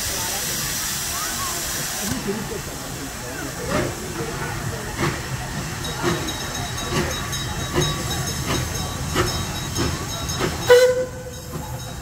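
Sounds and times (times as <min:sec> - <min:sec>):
hissing steam: 0:00.0 - 0:12.0
steam locomotive chuffing: 0:00.0 - 0:12.0.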